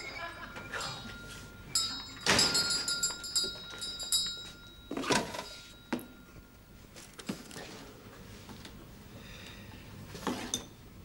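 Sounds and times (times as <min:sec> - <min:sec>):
doorbell jangling: 0:00.0 - 0:06.3.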